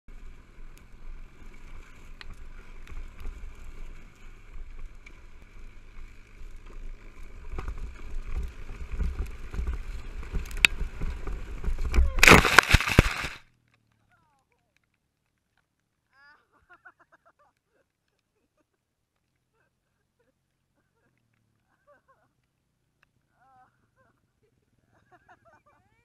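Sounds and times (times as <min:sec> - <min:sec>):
sled dragging over grass: 0:00.1 - 0:14.8
wind noise: 0:07.3 - 0:13.4
scraping and knocks of fall: 0:09.7 - 0:13.4.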